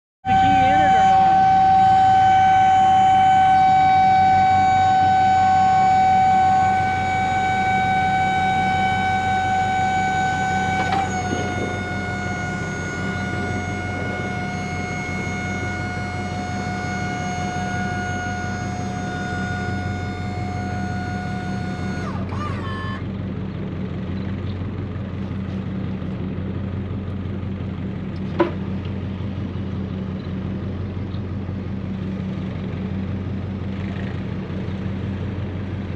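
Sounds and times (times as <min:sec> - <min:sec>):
hydraulic pump motor whining: 0:00.3 - 0:23.1
low steady hum: 0:00.3 - 0:35.9.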